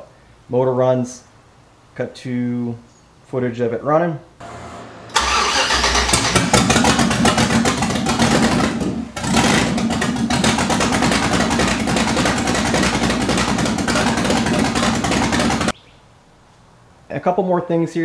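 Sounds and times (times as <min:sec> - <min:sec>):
loud car engine running: 0:04.4 - 0:15.7.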